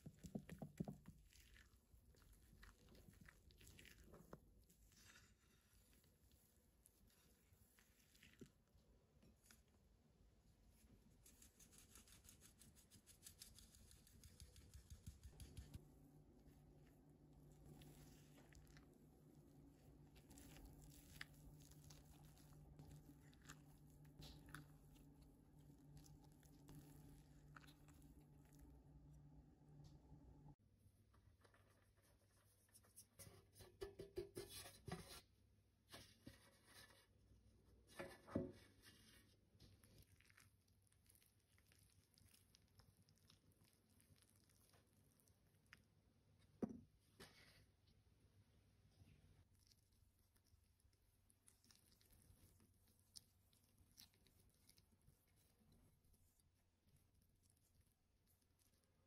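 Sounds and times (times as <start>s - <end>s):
flour rustling in metal pan: 17.3s - 28.4s.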